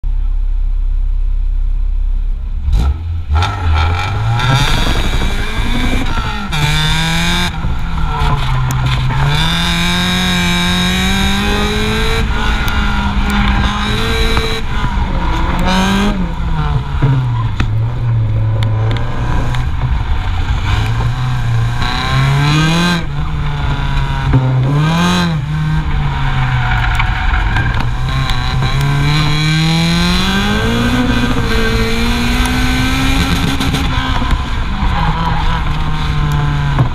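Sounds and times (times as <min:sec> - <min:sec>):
road and wind noise: 0:00.0 - 0:36.9
car engine revving: 0:02.2 - 0:36.9.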